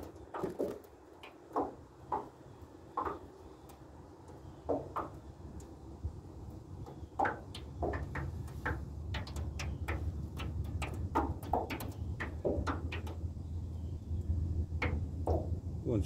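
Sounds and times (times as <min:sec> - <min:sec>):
waves slapping metal boat: 0:06.4 - 0:15.8
steady low rumble: 0:12.0 - 0:16.0.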